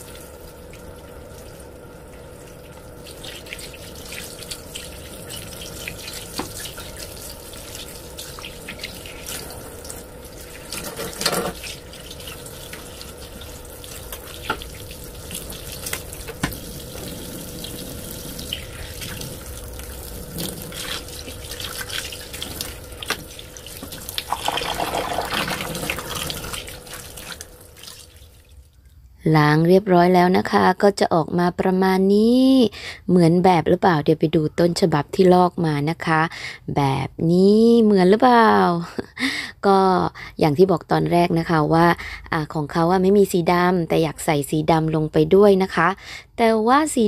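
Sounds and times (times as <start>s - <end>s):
tap water running into sink: 0.0s - 28.5s
water splashing and dripping: 0.0s - 28.7s
hands rinsing fabric: 2.3s - 28.6s.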